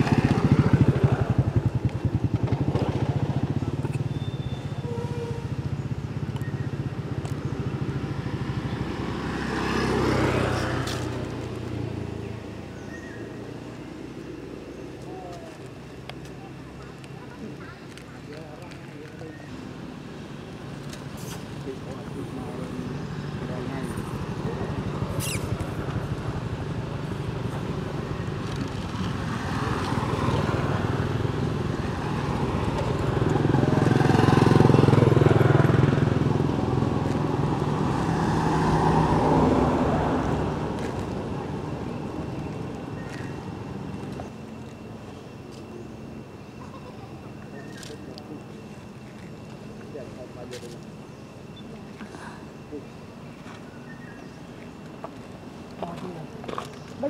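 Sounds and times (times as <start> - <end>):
motorcycle engine idling: 0.0 - 8.9
motorcycle engine running: 0.0 - 9.0, 22.8 - 38.0
high falling squeak: 25.1 - 25.6.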